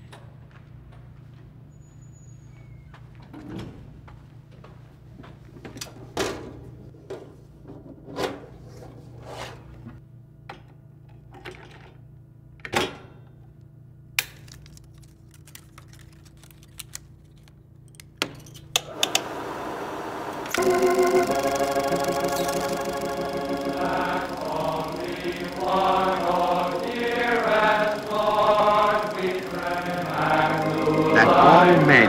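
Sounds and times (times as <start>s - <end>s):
projector parts clicking: 14.2s - 19.2s, 21.4s - 31.2s
projector whirring: 18.8s - 32.0s.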